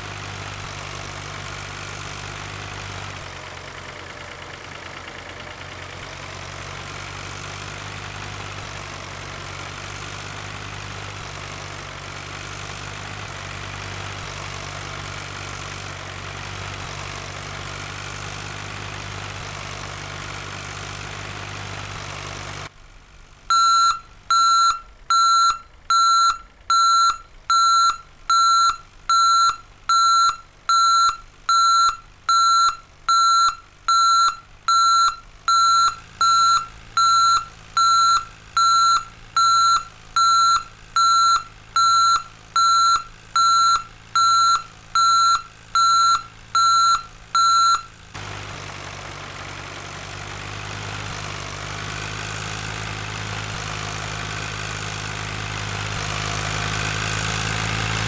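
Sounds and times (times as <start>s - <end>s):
low engine hum: 0.0s - 58.0s
electronic warning beeps: 23.5s - 47.9s.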